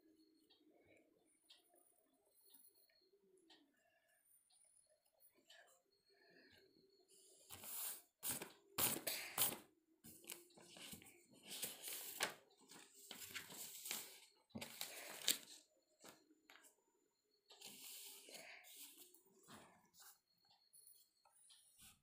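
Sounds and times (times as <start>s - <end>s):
paper rustling and crinkling: 7.6s - 16.2s.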